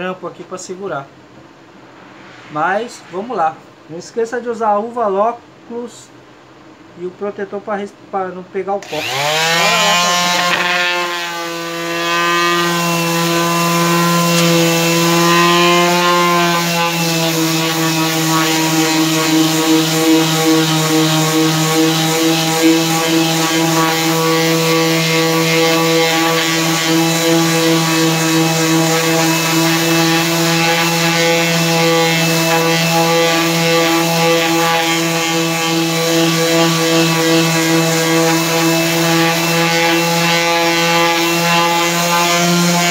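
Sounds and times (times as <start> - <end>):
electric sander sanding wood: 8.8 - 42.9.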